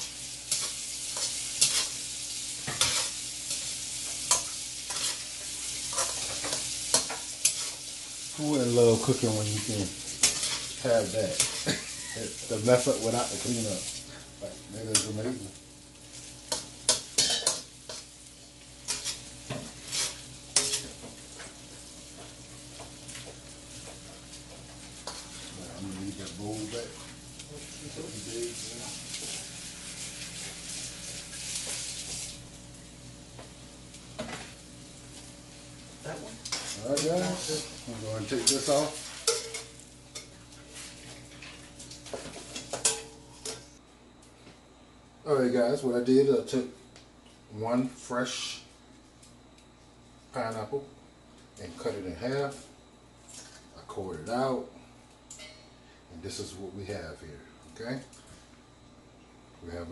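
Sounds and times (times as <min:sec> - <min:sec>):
spatula scraping and tapping wok: 0:00.0 - 0:08.0, 0:10.0 - 0:11.8, 0:16.2 - 0:18.2, 0:18.8 - 0:21.5, 0:22.1 - 0:25.5, 0:36.4 - 0:43.7
frying sizzle: 0:00.0 - 0:43.8, 0:47.7 - 0:49.3.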